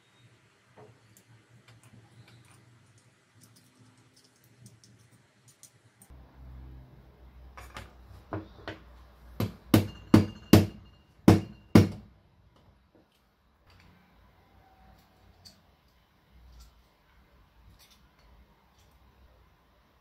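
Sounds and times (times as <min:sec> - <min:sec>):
sharp metallic knocks: 0:09.4 - 0:12.1.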